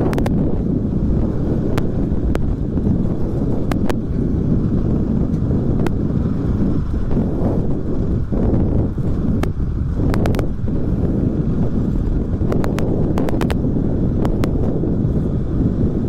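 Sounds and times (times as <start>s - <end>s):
motorcycle engine rumble: 0.0s - 16.0s
wind buffeting microphone: 0.0s - 16.0s.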